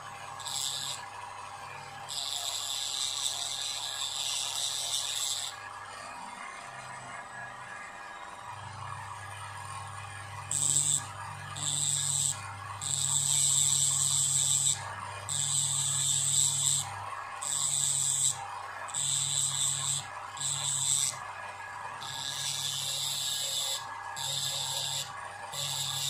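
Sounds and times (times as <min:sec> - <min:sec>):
small electric drill bursts: 0:00.4 - 0:01.0, 0:02.1 - 0:05.6, 0:10.5 - 0:21.2, 0:22.0 - 0:26.0.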